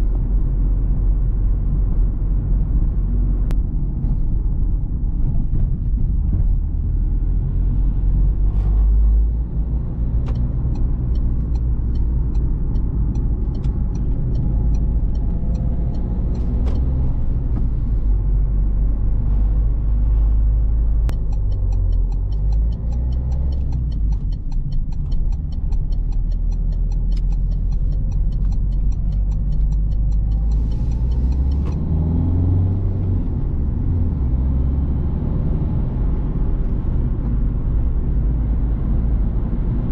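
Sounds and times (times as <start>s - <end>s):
car engine drone: 0.0s - 39.9s
road and tyre rumble: 0.0s - 39.9s
turn indicator ticking: 7.9s - 18.2s, 20.9s - 34.6s.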